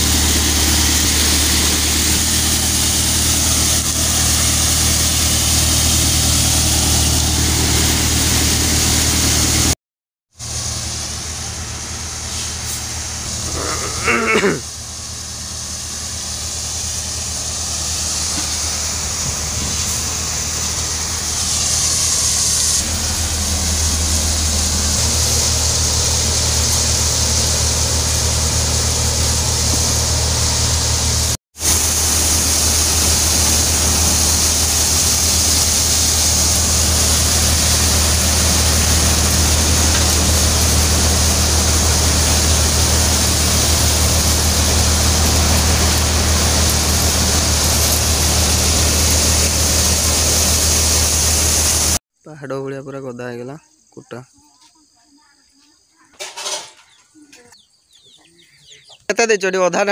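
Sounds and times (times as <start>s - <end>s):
thresher engine hum: 0.0s - 9.8s, 10.4s - 52.0s
threshing drum hissing: 0.0s - 9.8s, 10.4s - 52.0s
short falling cry: 13.4s - 14.7s.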